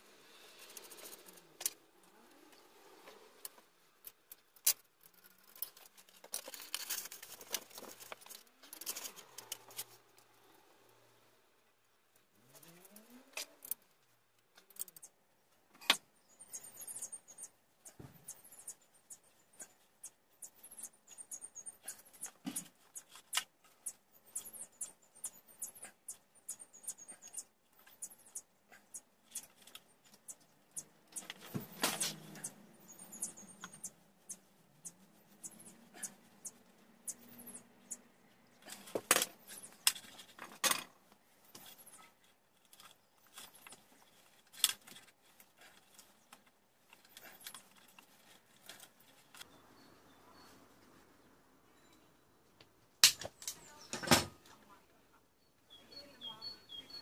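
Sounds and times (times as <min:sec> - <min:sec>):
clicks and rattles of wiring: 0:03.4 - 0:10.0, 0:29.2 - 0:32.5, 0:38.6 - 0:49.5, 0:53.0 - 0:54.6.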